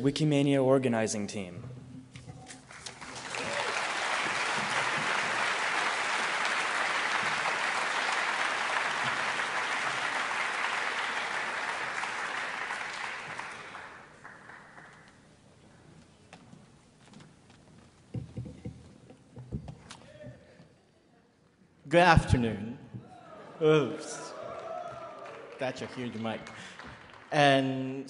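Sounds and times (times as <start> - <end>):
audience applauding: 2.6 - 15.2, 23.6 - 28.0.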